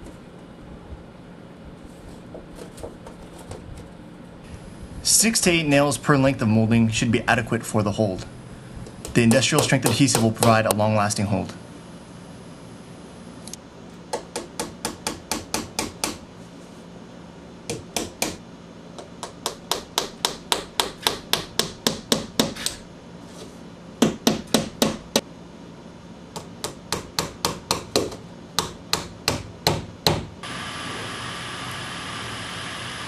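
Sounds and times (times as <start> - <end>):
hammer striking nails: 9.0 - 10.8, 14.1 - 16.2, 17.7 - 18.4, 19.0 - 22.8, 24.0 - 25.2, 26.4 - 30.3.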